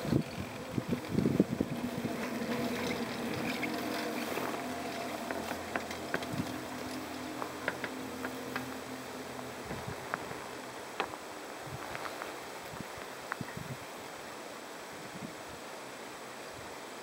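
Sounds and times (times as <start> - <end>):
light clicks and creaks: 0.0 - 11.2
chairlift hum: 0.0 - 14.9.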